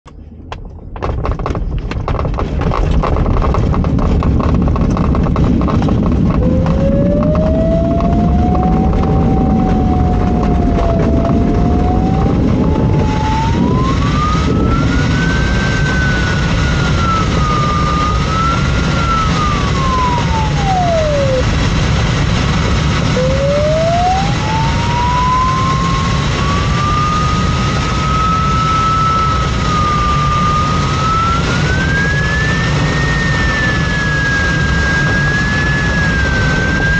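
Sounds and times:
glider rolling and rattling: 0.5 - 27.3
electronic variometer tone: 3.1 - 36.9.

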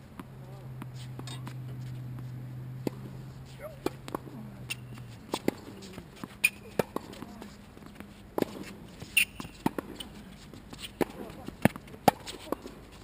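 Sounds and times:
racket striking tennis ball: 0.2 - 10.2, 10.8 - 12.8
sneaker squeaks: 0.9 - 2.3, 4.6 - 11.0
ball bouncing on hard court: 3.7 - 10.1.

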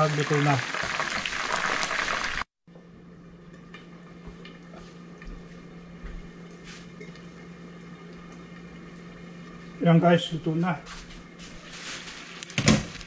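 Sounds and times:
chicken frying in oil: 0.0 - 2.5
steady low hum: 2.7 - 13.0.

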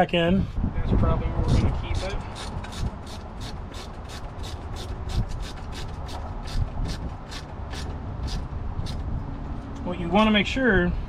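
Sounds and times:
hands and screwdriver scraping: 1.4 - 9.1.

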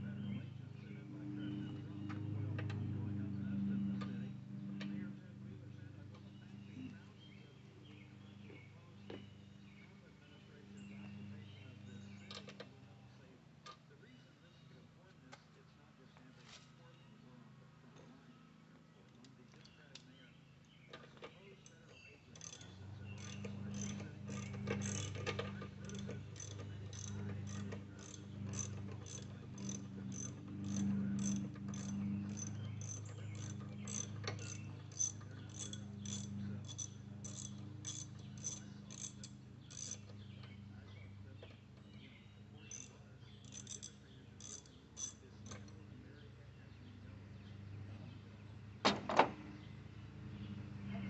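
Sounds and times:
steady low hum: 0.0 - 51.0
hand ratchet clicking: 22.4 - 40.1, 42.7 - 45.7.

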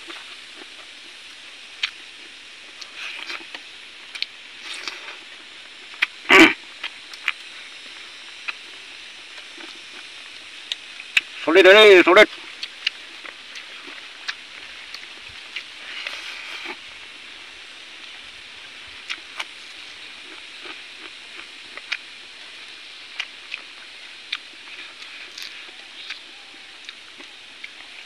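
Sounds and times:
steady background hiss: 0.0 - 28.0
chicken torn apart and chewed: 19.0 - 28.0.

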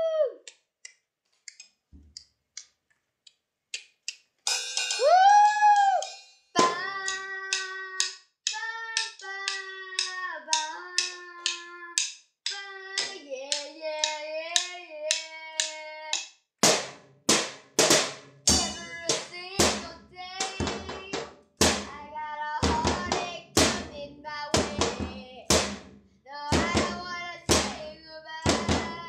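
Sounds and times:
heavy drum hits: 16.6 - 19.9, 20.6 - 22.0, 22.7 - 23.9, 24.6 - 26.0.

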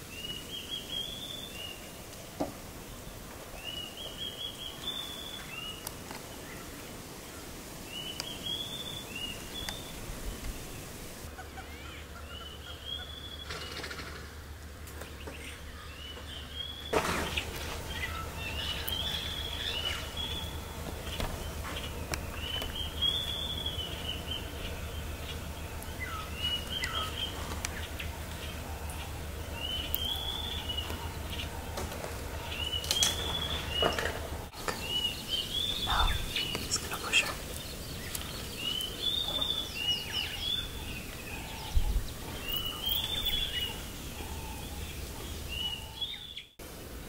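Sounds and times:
low steady hum: 0.0 - 47.0
bird whistling calls: 15.9 - 34.1.

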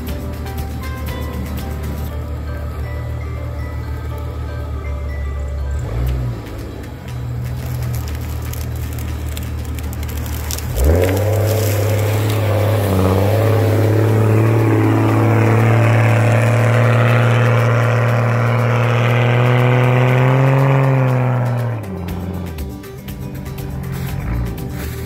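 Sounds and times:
engine revving hard: 10.7 - 22.4.

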